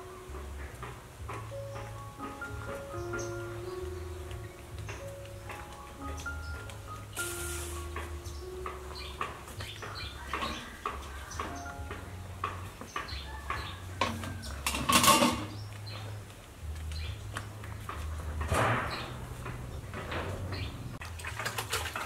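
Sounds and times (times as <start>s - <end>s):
birds chirping: 0.0s - 21.1s
bowls and basins clattering: 4.3s - 15.7s, 17.8s - 22.0s.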